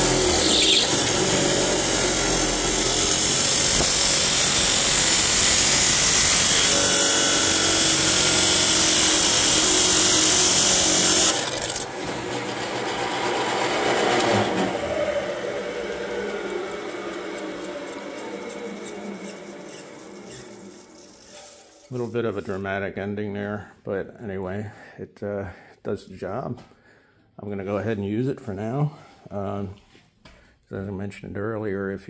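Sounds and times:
saw blade and motor winding down: 0.0s - 22.0s
saw grinding through steel: 0.0s - 22.5s.

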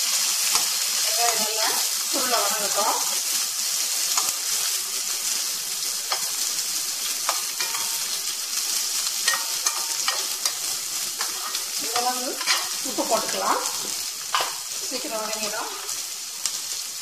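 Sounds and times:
onions sizzling in oil: 0.0s - 17.0s
spatula scraping and tapping pan: 4.1s - 4.4s, 6.0s - 16.6s.

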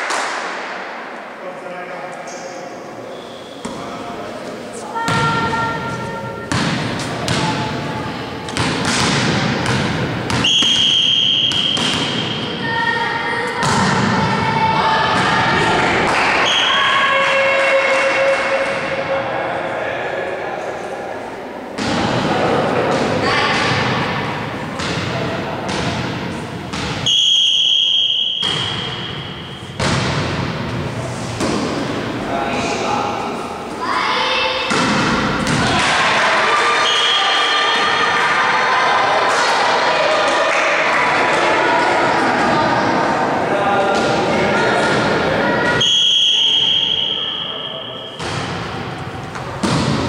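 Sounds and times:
indoor sports play with thuds: 0.0s - 1.3s, 3.3s - 19.5s, 21.6s - 33.9s, 34.5s - 50.0s
referee's whistle blast: 10.4s - 12.5s, 27.0s - 29.6s, 45.8s - 48.2s.

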